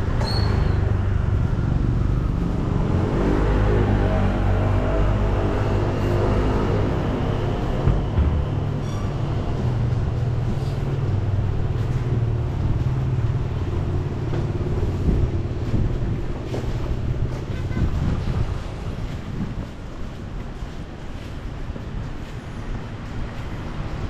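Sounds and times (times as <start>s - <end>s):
low rumble of traffic: 0.0s - 24.0s
wind on microphone: 9.6s - 22.2s.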